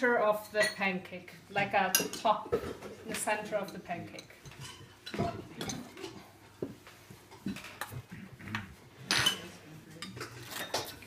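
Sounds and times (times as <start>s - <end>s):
metal spoons clinking on bowl: 0.4s - 0.9s, 3.1s - 6.2s, 9.1s - 11.0s.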